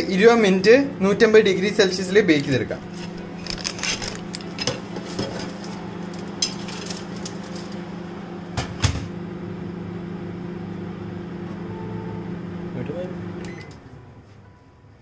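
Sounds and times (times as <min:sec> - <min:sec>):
microwave oven humming: 0:00.0 - 0:15.0
oven door knocking shut: 0:08.5 - 0:09.1.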